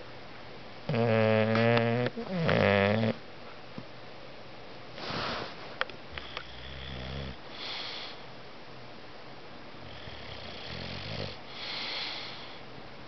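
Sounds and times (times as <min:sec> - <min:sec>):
dog snoring: 0:00.9 - 0:03.2, 0:06.1 - 0:08.2, 0:09.8 - 0:12.6
hissing breath out: 0:05.0 - 0:05.8, 0:07.5 - 0:08.3, 0:11.5 - 0:12.6.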